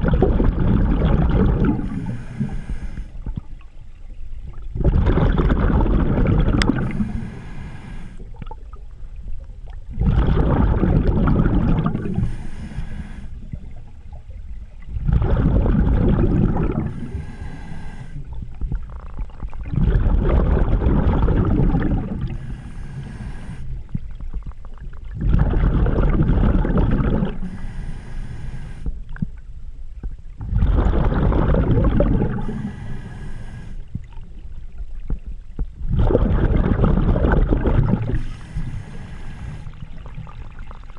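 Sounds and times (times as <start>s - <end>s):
exhaled bubbles rushing: 0.0s - 7.4s, 8.1s - 12.5s, 13.4s - 17.3s, 18.3s - 22.6s, 23.5s - 27.5s, 30.4s - 32.8s, 35.8s - 40.9s
regulator inhale hiss: 1.8s - 3.3s, 6.8s - 8.4s, 12.0s - 13.7s, 16.8s - 18.5s, 22.2s - 24.1s, 27.3s - 29.1s, 32.2s - 34.0s, 38.1s - 40.3s.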